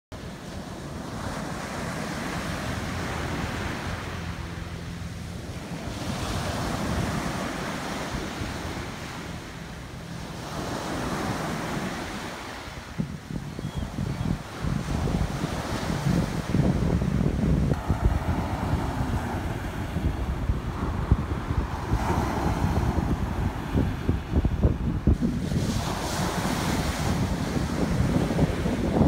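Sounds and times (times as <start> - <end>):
ocean waves breaking on beach: 0.2 - 29.0
wind buffeting microphone: 0.2 - 29.0.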